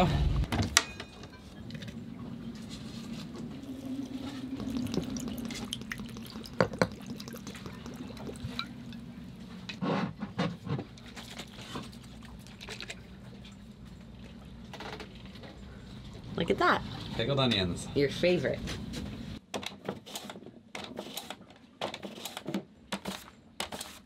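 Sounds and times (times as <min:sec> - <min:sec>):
low hum: 0:00.0 - 0:09.8
liquid sloshing in a jar: 0:03.2 - 0:09.6, 0:10.9 - 0:13.6
glass jar clinking: 0:05.6 - 0:09.1.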